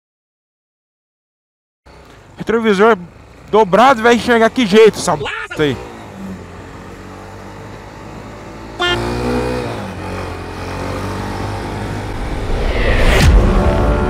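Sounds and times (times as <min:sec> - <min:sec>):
motorcycle engine hum: 0:01.9 - 0:14.0
rush of passing traffic: 0:01.9 - 0:14.0
horn honk: 0:08.8 - 0:09.6.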